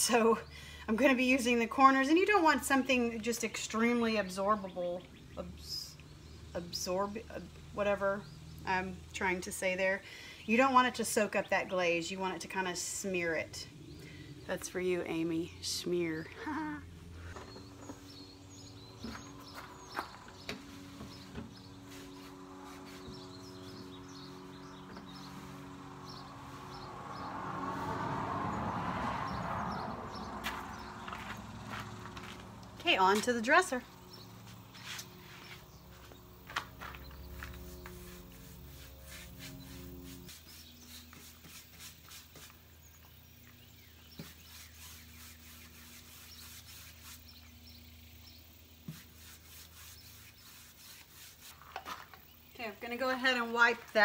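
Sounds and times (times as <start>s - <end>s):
motor vehicle passing: 13.3s - 48.4s
hand rubbing on wood: 19.1s - 26.7s, 34.4s - 42.7s, 44.2s - 47.4s, 48.8s - 51.7s
steady low hum: 31.1s - 41.0s.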